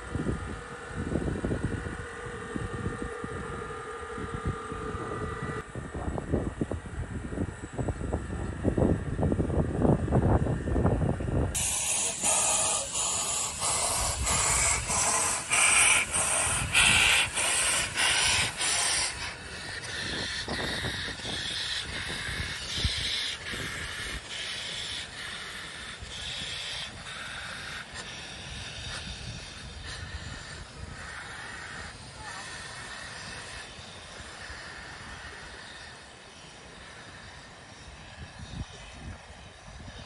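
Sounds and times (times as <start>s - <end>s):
wind rumble on microphone: 0.0s - 35.8s, 37.2s - 40.0s
steam locomotive chuffing: 11.5s - 39.9s
hiss of escaping steam: 11.6s - 39.0s.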